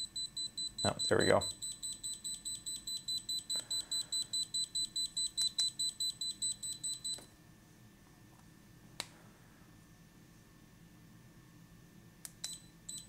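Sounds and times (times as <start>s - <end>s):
rapid high-pitched beeps: 0.0s - 7.2s.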